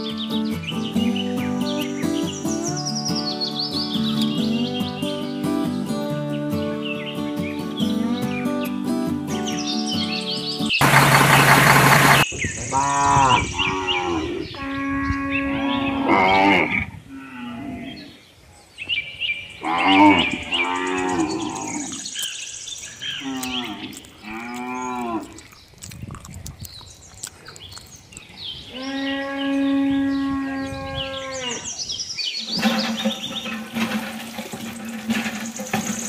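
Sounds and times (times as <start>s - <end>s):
cows mooing: 12.7s - 18.0s, 19.6s - 22.1s, 23.1s - 25.6s, 28.7s - 31.7s.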